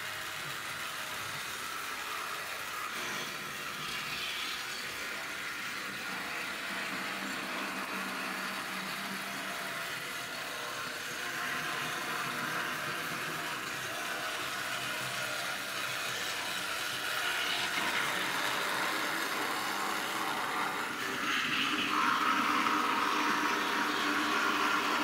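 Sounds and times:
model tram motor whir: 0:00.0 - 0:25.0.

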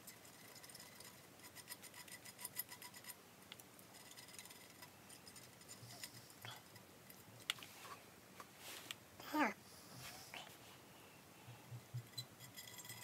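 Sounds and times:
cotton swab scratching metal: 0:00.0 - 0:03.2.

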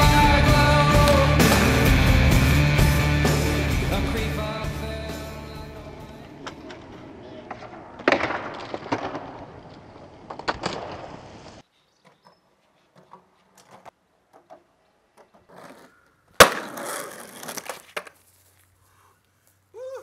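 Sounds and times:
skateboard landing: 0:00.0 - 0:04.3, 0:05.9 - 0:12.2, 0:12.9 - 0:18.2
skateboard wheels rolling on concrete: 0:00.0 - 0:19.9.

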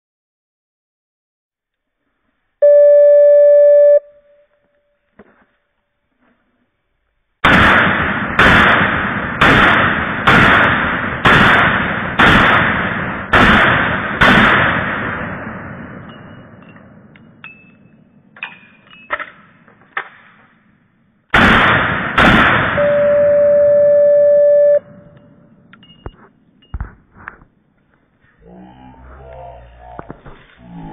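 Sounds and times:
steady beep: 0:02.6 - 0:04.4, 0:22.8 - 0:26.8
slowed pistol shots booming: 0:07.4 - 0:17.1, 0:19.5 - 0:23.3.

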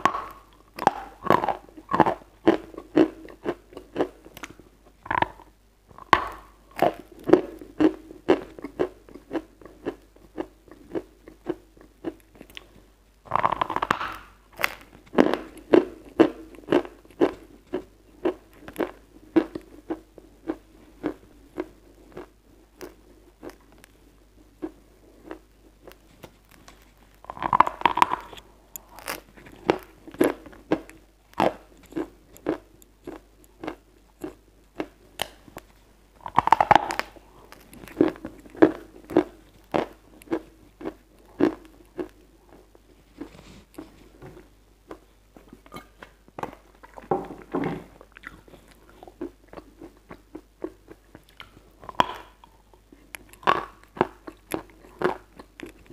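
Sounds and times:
crunching and chewing chalk: 0:00.0 - 0:45.5, 0:47.9 - 0:55.9.

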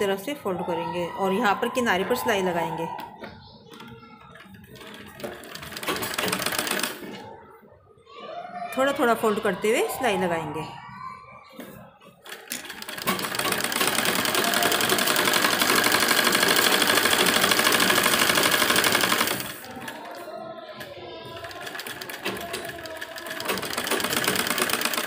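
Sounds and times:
sewing machine stitching: 0:04.3 - 0:07.2, 0:12.3 - 0:20.2, 0:21.2 - 0:25.0.

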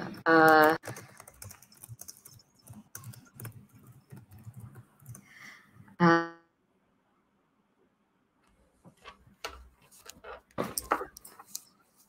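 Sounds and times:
keyboard typing: 0:00.0 - 0:05.4.

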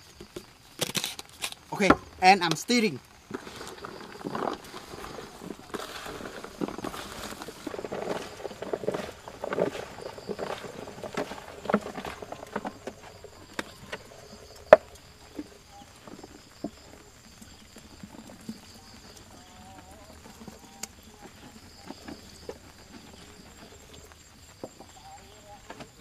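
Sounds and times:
stirring in mixing bowl: 0:03.3 - 0:16.8.

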